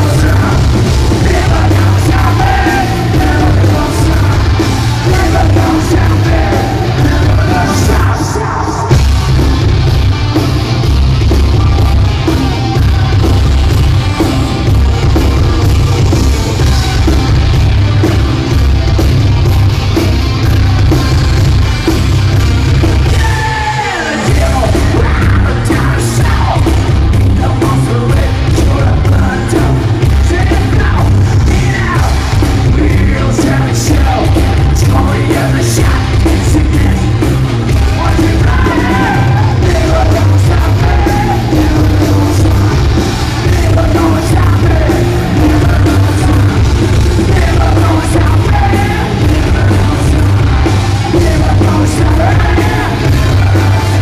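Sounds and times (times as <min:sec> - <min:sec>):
shouted vocals: 0:00.0 - 0:09.0, 0:23.0 - 0:26.8, 0:27.4 - 0:54.0
metal band playing live: 0:00.0 - 0:54.0.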